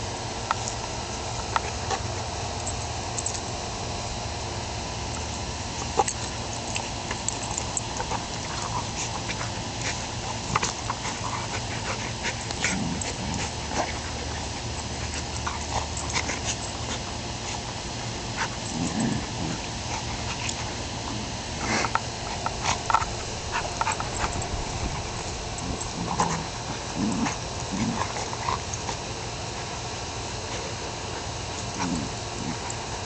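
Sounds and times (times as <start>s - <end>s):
dogs growling: 0.0s - 33.0s
scuffling clicks: 21.6s - 26.4s.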